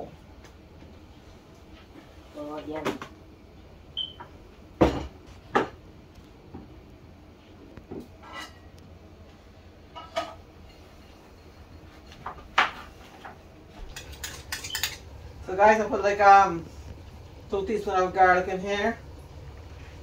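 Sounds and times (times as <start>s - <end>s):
dishes and pots clinking: 8.0s - 8.7s, 9.9s - 15.1s.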